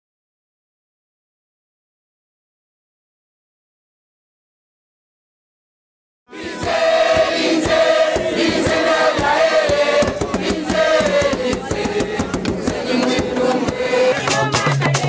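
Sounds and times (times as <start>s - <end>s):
choir singing: 6.3s - 15.0s
drums: 6.4s - 15.0s.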